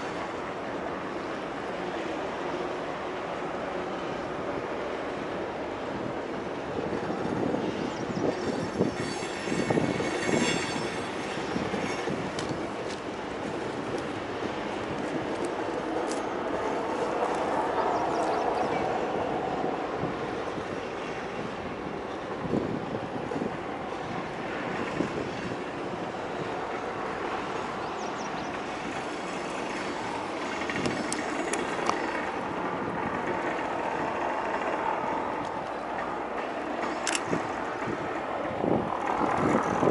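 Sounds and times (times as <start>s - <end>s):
train wheels rumbling over bridge: 0.0s - 39.9s
wheels clattering over rail joints: 6.0s - 39.9s
high wheel squeal: 7.0s - 13.0s
sharp metallic clicks: 36.8s - 37.4s.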